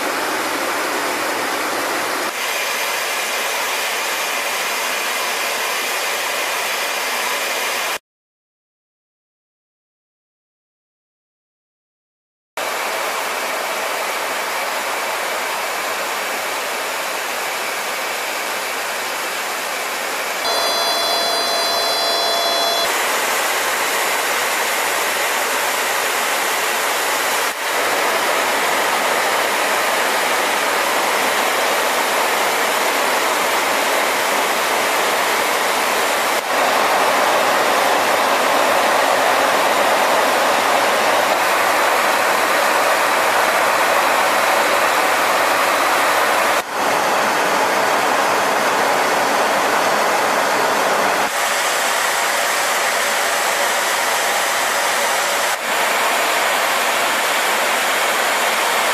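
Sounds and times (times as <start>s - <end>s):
jet engine and airflow roar: 0.0s - 7.9s, 12.6s - 58.9s
high steady whining tones: 20.4s - 24.5s.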